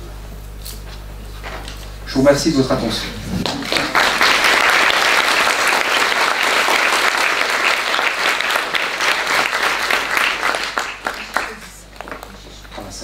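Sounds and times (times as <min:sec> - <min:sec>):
audience applauding: 0:03.2 - 0:12.8.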